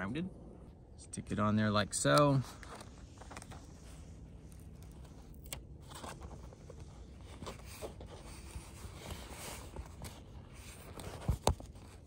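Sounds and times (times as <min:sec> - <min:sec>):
light crackles: 0:02.0 - 0:12.0
paper backing peeling: 0:02.4 - 0:12.0.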